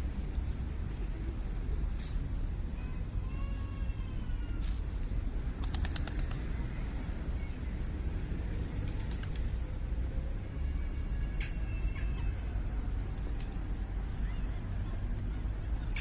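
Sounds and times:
city traffic rumble: 0.0 - 16.0
pigeon wings clapping: 5.6 - 6.4, 8.7 - 9.5.

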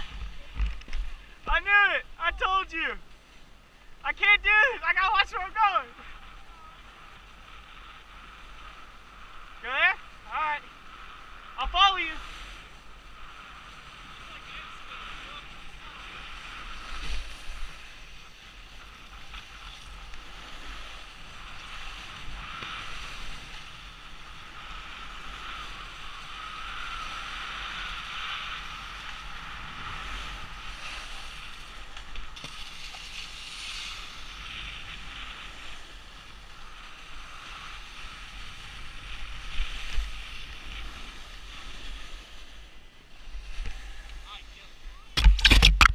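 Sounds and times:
wind on microphone: 0.0 - 1.6
snowboard scraping on icy snow: 0.0 - 1.9, 4.2 - 44.8.

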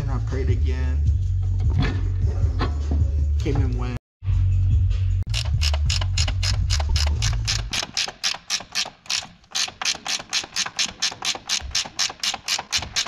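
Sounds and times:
ratchet wrench clicking: 5.3 - 13.0.

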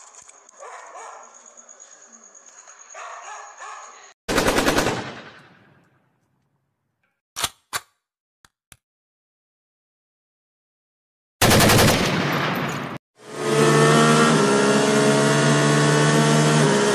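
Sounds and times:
dog barking: 0.6 - 1.4, 2.9 - 4.1
gunshots: 4.3 - 5.8, 11.4 - 13.0
machine-gun fire: 4.3 - 5.8, 11.4 - 13.0.

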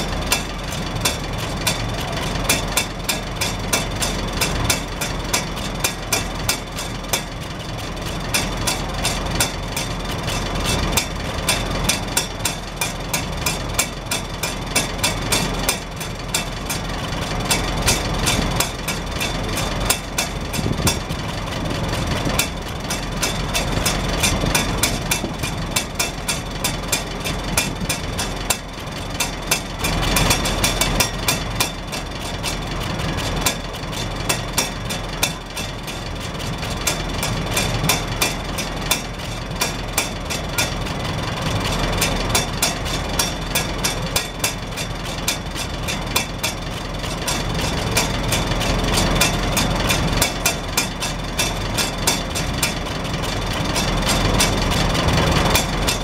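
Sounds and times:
tractor engine idling: 0.0 - 56.0.

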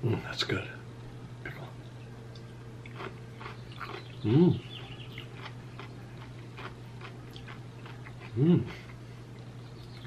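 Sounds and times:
pickle being chewed: 2.3 - 10.0.

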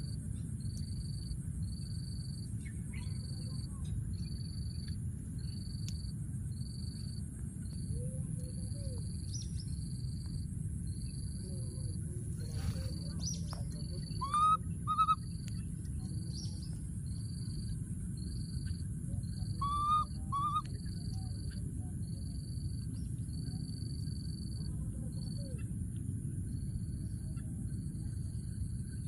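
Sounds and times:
baby macaque squeaky calls: 14.0 - 15.2, 19.5 - 20.6.

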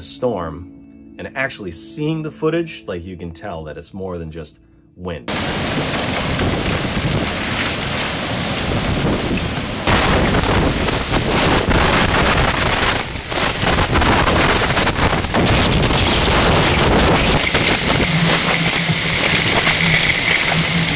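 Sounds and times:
driving rain: 5.3 - 20.9
storm wind gusts on microphone: 5.3 - 20.9.

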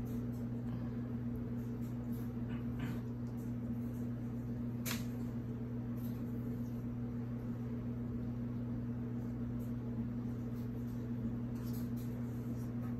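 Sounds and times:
steady low hum: 0.0 - 12.9.

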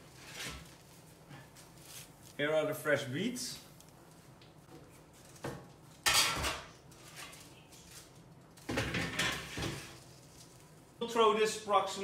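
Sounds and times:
dishes and pans clattering: 6.0 - 6.7, 8.7 - 9.9.

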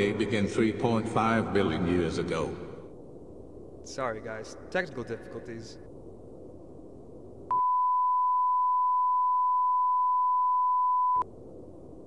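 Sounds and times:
high steady test tone beep: 7.5 - 11.3.

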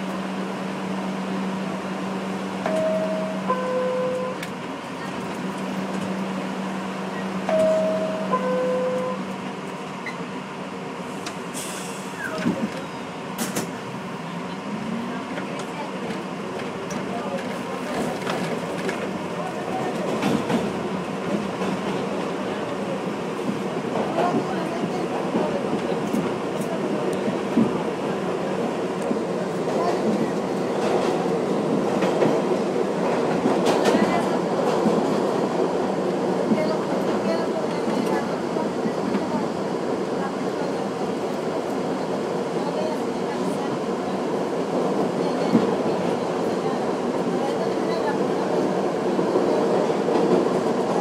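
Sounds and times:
subway train rumbling: 0.0 - 51.0
brief steady tone: 2.6 - 4.4, 7.5 - 9.3.

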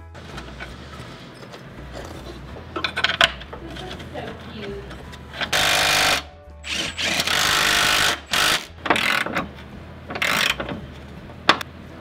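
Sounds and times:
power ratchet bursts: 5.5 - 9.3, 10.2 - 10.6.

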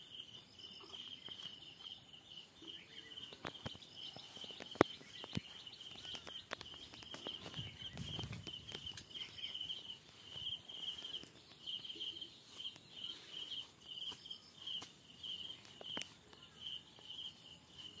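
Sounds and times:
insects chirping: 0.0 - 18.0
faint clicks: 3.3 - 9.5.

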